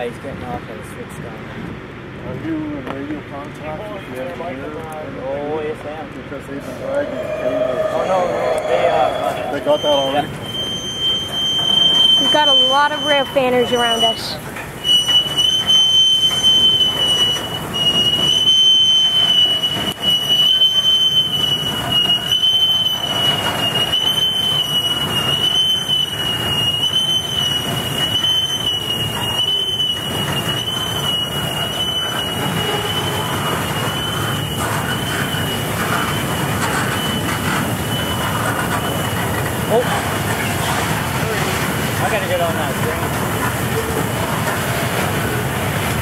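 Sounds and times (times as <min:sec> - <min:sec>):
train wheels rumbling on track: 0:00.0 - 0:46.0
high-pitched wheel squeal: 0:06.4 - 0:40.8.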